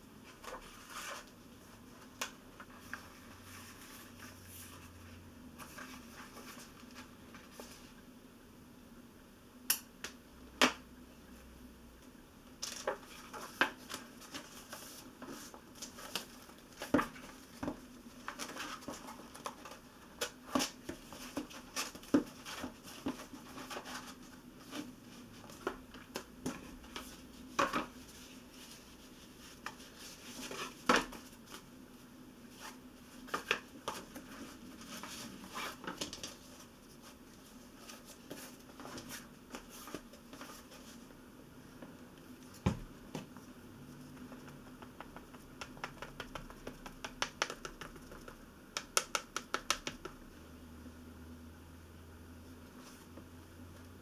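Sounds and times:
faint steady hum: 0:00.0 - 0:54.0
sharp taps and clicks: 0:44.8 - 0:50.2.

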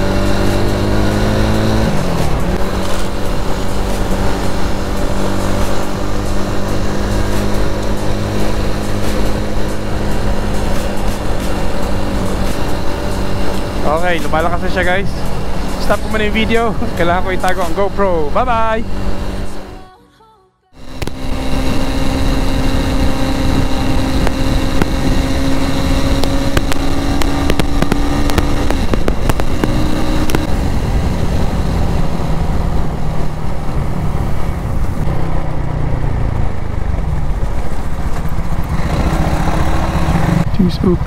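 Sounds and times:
steady rushing noise: 0:00.0 - 0:19.8, 0:20.8 - 0:41.0
motorcycle engine running: 0:00.0 - 0:19.9, 0:20.7 - 0:41.0.

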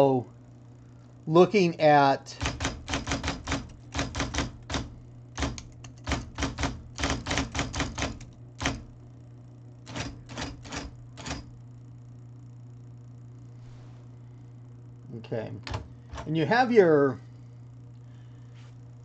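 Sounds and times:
steady low hum: 0:00.0 - 0:19.0
electric typewriter clacking: 0:02.3 - 0:08.9, 0:09.9 - 0:11.5.

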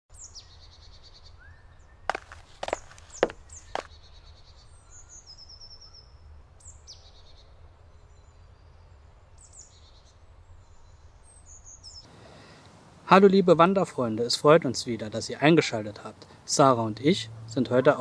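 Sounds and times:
forest birds chirping: 0:00.1 - 0:12.6.

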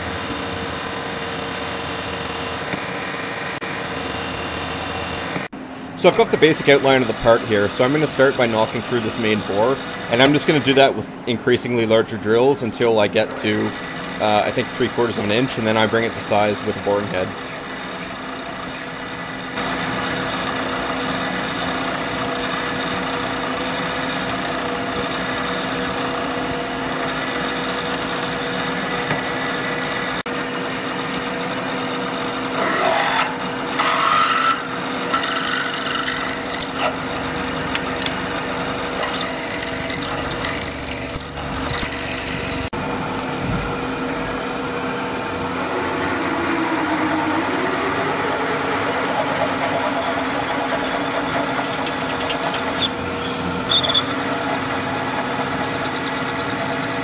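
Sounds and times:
milling machine spindle running: 0:13.6 - 0:57.0
high-pitched cutting noise: 0:14.2 - 0:28.8, 0:32.6 - 0:37.0, 0:39.0 - 0:42.7, 0:45.3 - 0:57.0
drill boring into metal: 0:14.9 - 0:19.0, 0:19.6 - 0:28.8, 0:32.6 - 0:37.0, 0:38.9 - 0:42.7, 0:46.6 - 0:57.0.

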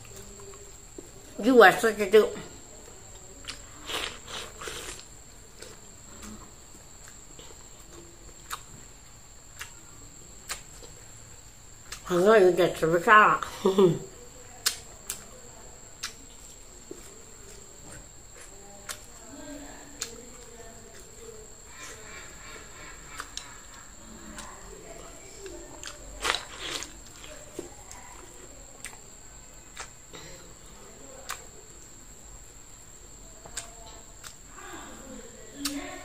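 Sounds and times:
person chewing: 0:03.4 - 0:11.1, 0:16.0 - 0:17.6, 0:20.9 - 0:24.6, 0:25.4 - 0:29.0, 0:29.7 - 0:30.0.

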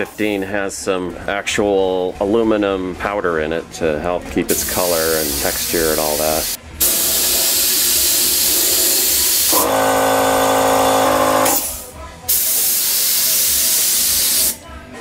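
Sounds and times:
paint spray gun hissing: 0:04.5 - 0:14.6.

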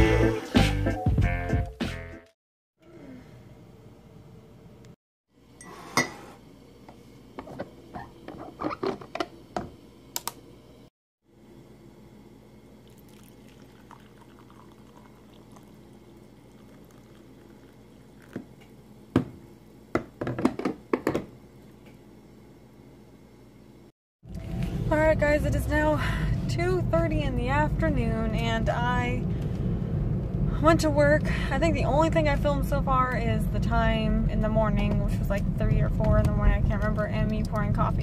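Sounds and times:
coffee pouring into a mug: 0:12.7 - 0:18.8
mug and carafe clinking: 0:12.8 - 0:15.8, 0:16.5 - 0:18.6.

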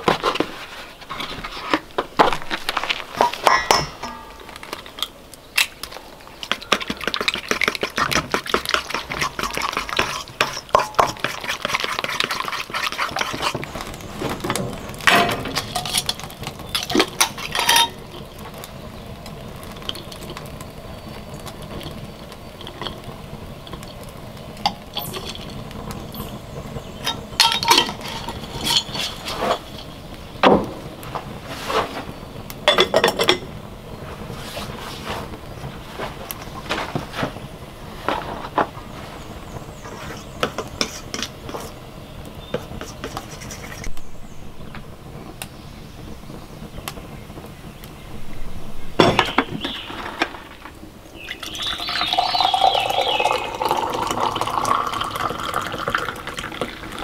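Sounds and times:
cookware and jars clinking: 0:03.2 - 0:05.1, 0:06.5 - 0:13.6, 0:14.5 - 0:18.2, 0:24.6 - 0:26.4, 0:27.0 - 0:30.0, 0:32.7 - 0:33.5
utensil stirring batter in metal bowl: 0:06.4 - 0:18.6, 0:27.0 - 0:30.1, 0:39.8 - 0:41.8, 0:42.5 - 0:43.9.

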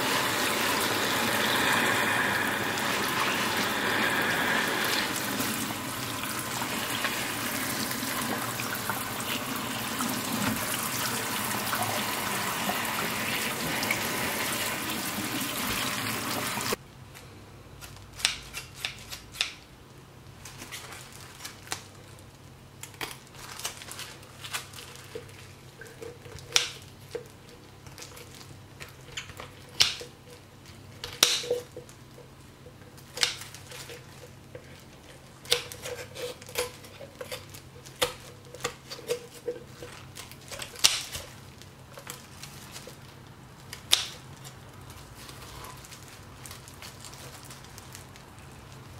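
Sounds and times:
tap water running: 0:00.0 - 0:16.8.

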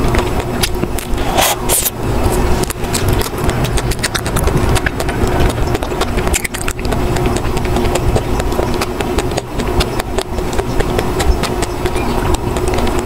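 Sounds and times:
chewing frozen ice cream: 0:00.0 - 0:13.0
steady low hum: 0:00.0 - 0:13.0.

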